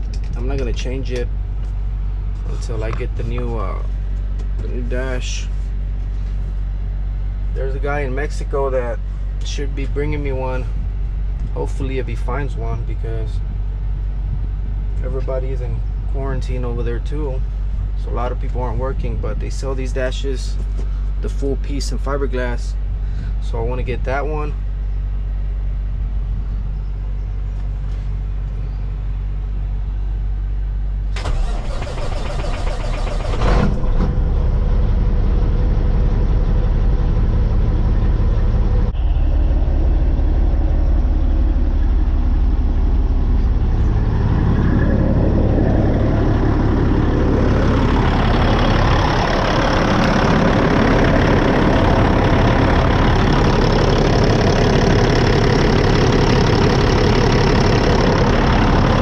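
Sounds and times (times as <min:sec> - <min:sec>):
truck diesel engine running: 0:29.3 - 0:59.0.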